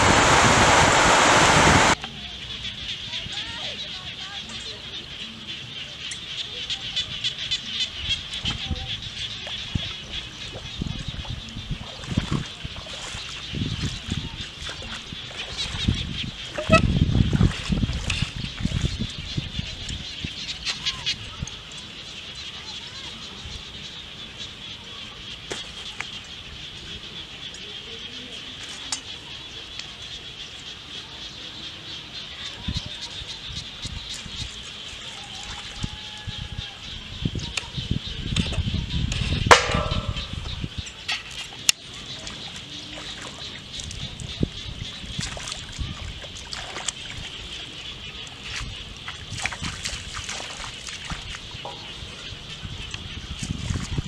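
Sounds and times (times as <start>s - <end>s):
bare feet splashing in water: 8.4s - 20.0s, 41.4s - 54.0s
sharp knock: 39.5s - 40.5s.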